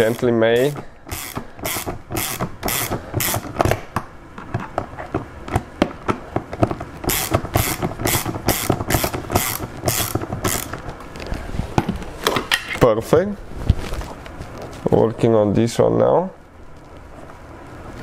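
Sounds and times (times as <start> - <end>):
hand ratchet clicking: 0.0 - 3.8, 7.0 - 10.8.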